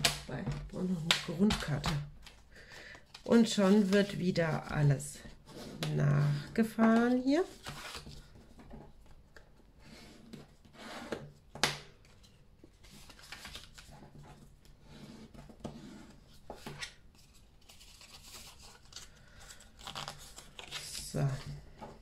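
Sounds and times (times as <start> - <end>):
paper rustling and scraping: 12.1 - 21.5.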